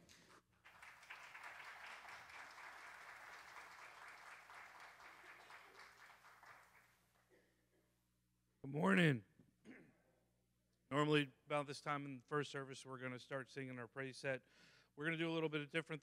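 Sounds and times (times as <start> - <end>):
congregation applauding: 0.0 - 7.2.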